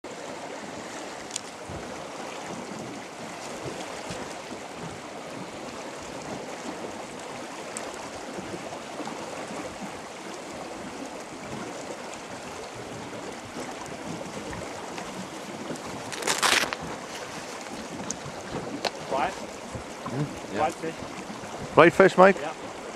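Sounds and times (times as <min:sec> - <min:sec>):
river current rushing and lapping: 0:00.0 - 0:22.9
wind buffeting microphone: 0:10.6 - 0:22.9.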